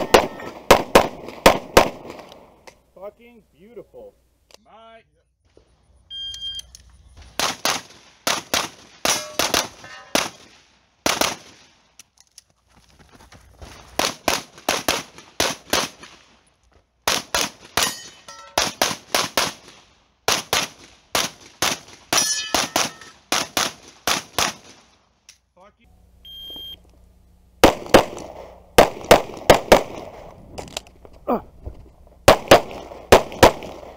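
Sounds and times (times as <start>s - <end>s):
pistol shots: 0.0s - 2.4s, 7.3s - 11.7s, 14.0s - 16.2s, 17.0s - 24.8s, 27.6s - 30.3s, 32.2s - 33.9s
metallic ringing: 9.1s - 10.2s, 17.8s - 18.6s, 22.2s - 23.2s.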